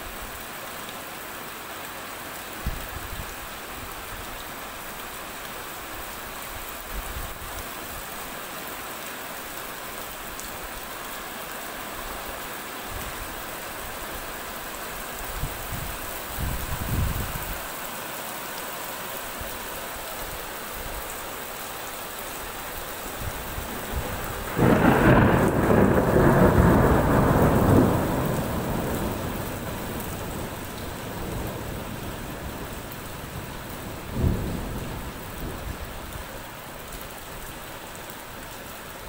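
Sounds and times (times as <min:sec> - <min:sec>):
heavy rain on street: 0:00.0 - 0:39.0
thunder clap rolling: 0:23.6 - 0:31.5.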